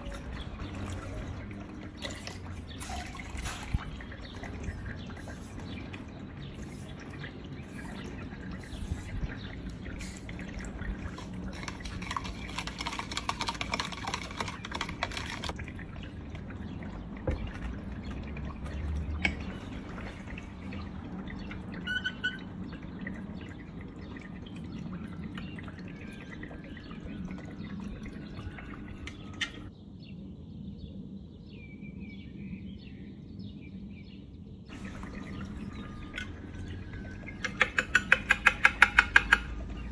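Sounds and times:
milk sloshing: 0.0s - 21.8s.

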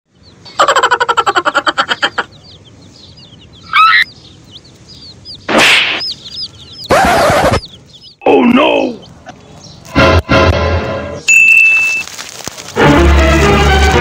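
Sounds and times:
chicks peeping: 0.1s - 10.3s
chicken clucking: 0.2s - 8.2s
harsh chicken calls: 0.2s - 9.6s.

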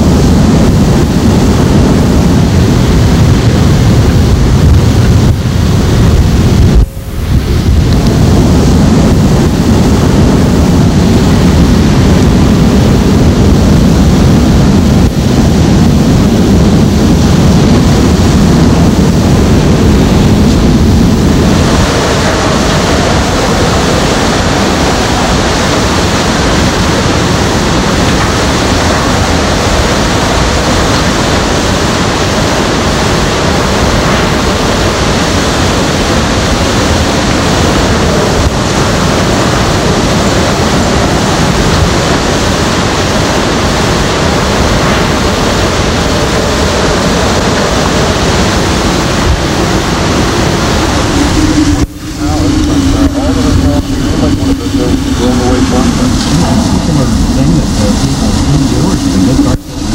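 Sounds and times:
surf crashing: 0.0s - 59.9s
wind buffeting microphone: 0.0s - 59.9s.

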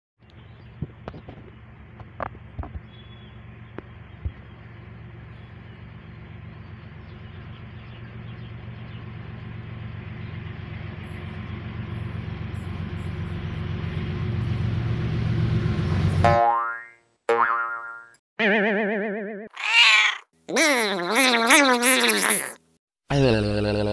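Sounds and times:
diesel locomotive engine rumble: 0.2s - 16.3s.

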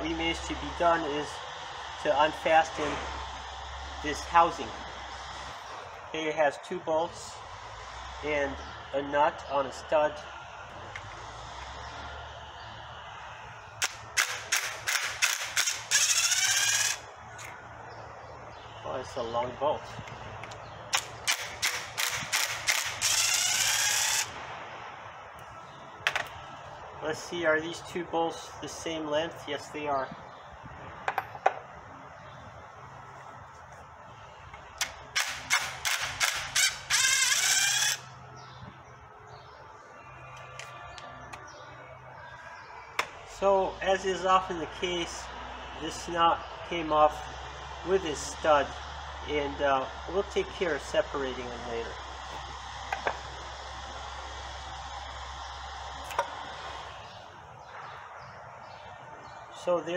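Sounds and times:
cordless driver bursts: 13.8s - 17.0s, 20.9s - 24.3s, 34.8s - 38.1s.

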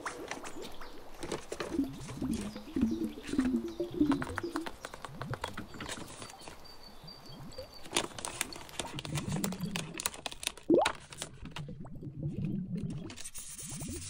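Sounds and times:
sharp paper crackle: 7.8s - 11.6s
paper sticker sheet crinkling: 7.9s - 11.4s.

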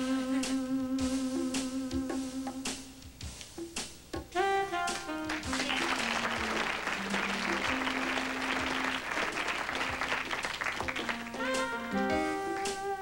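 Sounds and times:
instrumental backing music: 0.0s - 13.0s
audience applauding: 4.9s - 12.8s.

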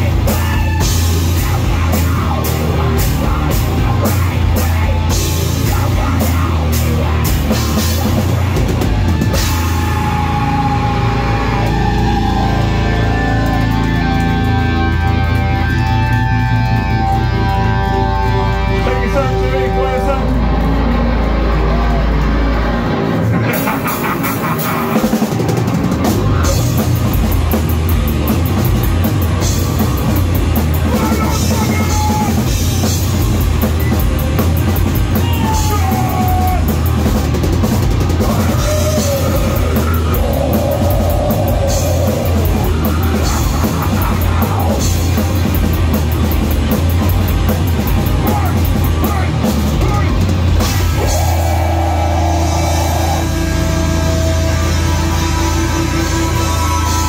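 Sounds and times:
metal band playing live: 0.0s - 57.0s.

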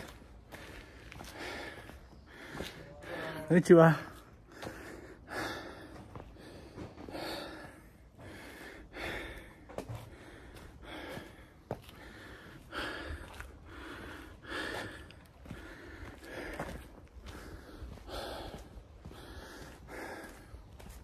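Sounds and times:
person breathing close to microphone: 4.4s - 21.0s.

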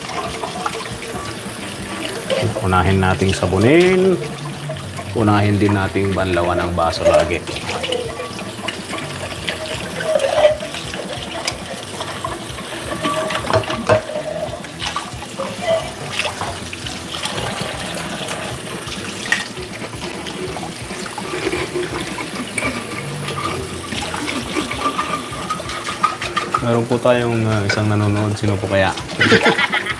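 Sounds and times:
tap running into metal sink: 0.0s - 29.2s
dishes clinking: 6.4s - 16.6s, 17.2s - 29.9s.

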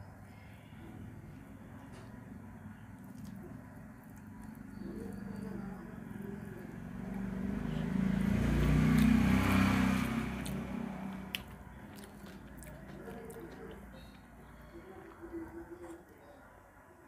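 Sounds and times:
vehicle engine passing by: 2.4s - 14.6s.

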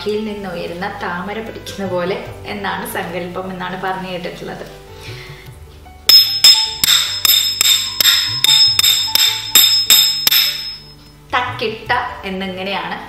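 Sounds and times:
ringing metallic cymbal clinks: 6.1s - 11.0s.

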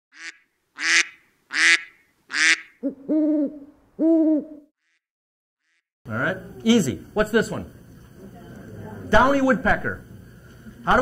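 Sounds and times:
owl hooting: 0.2s - 5.0s.

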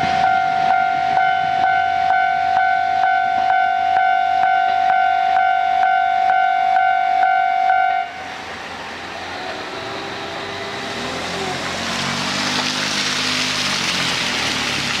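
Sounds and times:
level crossing warning bell: 0.0s - 8.3s
diesel railcar engine: 0.0s - 15.0s
rushing sound: 8.0s - 15.0s.

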